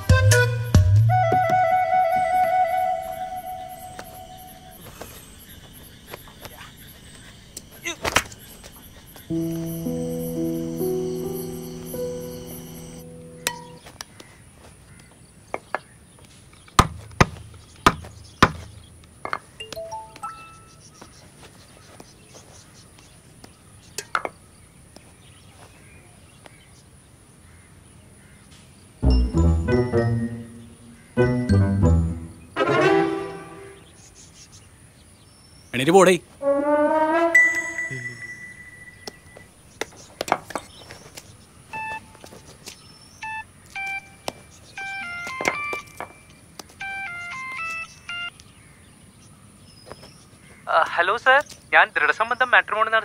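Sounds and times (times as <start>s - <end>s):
loud brass music: 29.0s - 33.8s
phone keypad beeps: 41.7s - 42.2s, 43.2s - 46.2s, 46.8s - 48.3s.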